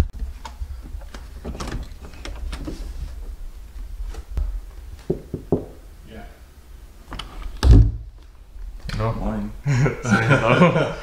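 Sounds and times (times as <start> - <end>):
soft knocks and steps: 0.2 - 5.9.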